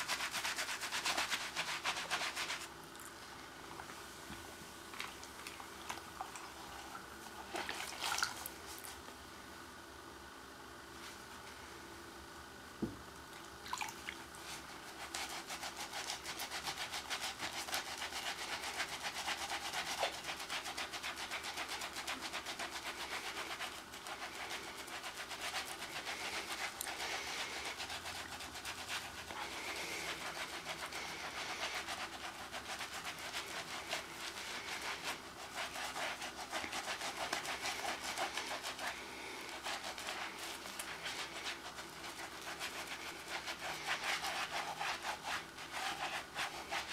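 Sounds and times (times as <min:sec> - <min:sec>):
hands being scrubbed: 0:00.0 - 0:02.7, 0:07.4 - 0:09.0, 0:14.4 - 0:46.9.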